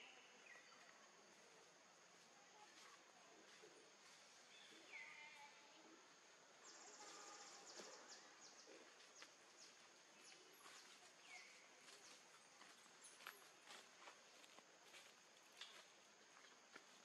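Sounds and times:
insects droning: 0.0s - 17.0s
insect buzzing trill: 6.7s - 7.7s.

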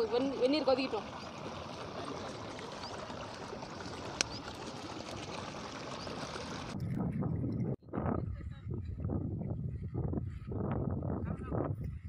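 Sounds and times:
stream water over rocks: 0.0s - 6.8s.

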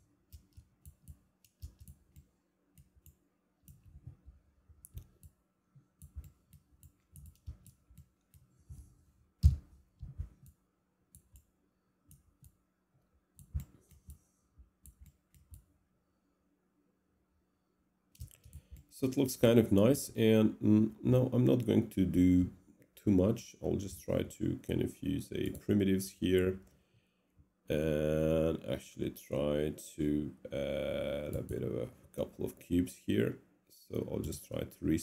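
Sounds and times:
faint steady hum: 0.0s - 35.0s
computer mouse clicks: 0.3s - 4.0s, 4.8s - 5.4s, 6.0s - 8.5s, 10.2s - 11.5s, 13.4s - 15.7s, 18.1s - 18.9s.

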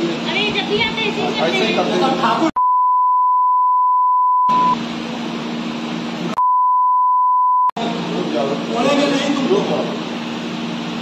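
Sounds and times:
room noise with low hum: 0.0s - 2.5s, 7.8s - 11.0s
censor bleep tone: 2.6s - 4.8s, 6.4s - 7.7s.

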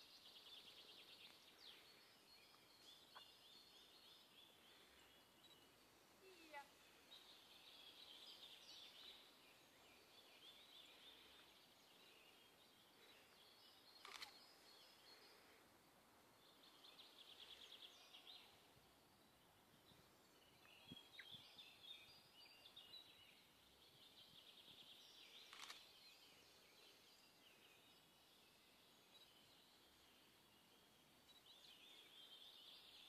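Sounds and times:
songbirds trilling and twittering: 0.0s - 33.0s.

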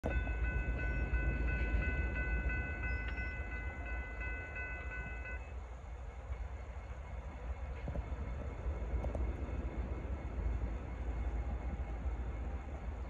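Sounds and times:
crossing bell ringing: 0.0s - 5.6s.

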